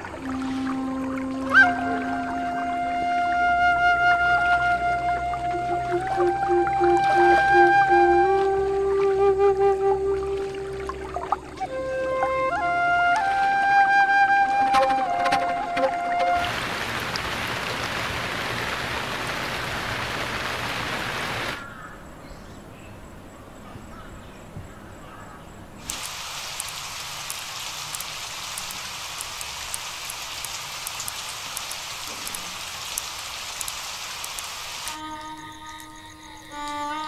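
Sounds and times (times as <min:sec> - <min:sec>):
rain dripping: 0:00.0 - 0:21.6, 0:25.8 - 0:35.0
steady rain falling: 0:00.0 - 0:21.6, 0:25.8 - 0:35.1.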